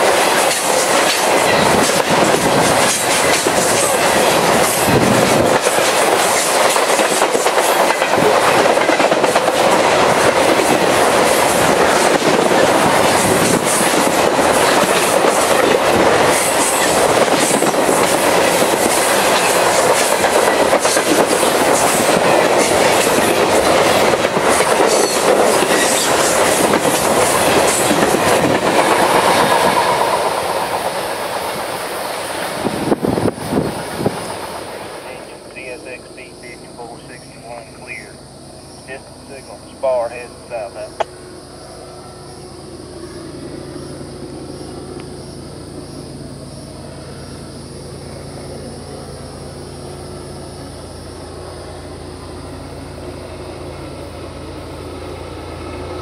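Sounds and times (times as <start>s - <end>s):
wheels clacking over rail joints: 0.0s - 35.5s
freight train rolling past: 0.0s - 56.0s.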